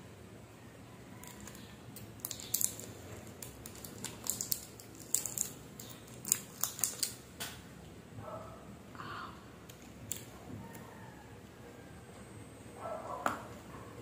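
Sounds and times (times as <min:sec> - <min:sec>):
chocolate wrapper crinkling: 0:01.2 - 0:07.3, 0:09.7 - 0:10.3.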